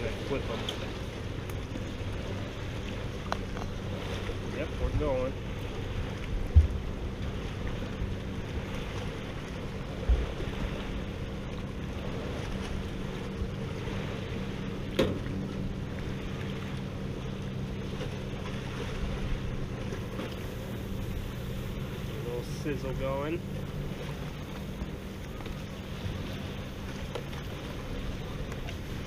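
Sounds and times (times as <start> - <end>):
low thump: 6.5 - 6.8, 14.9 - 15.4.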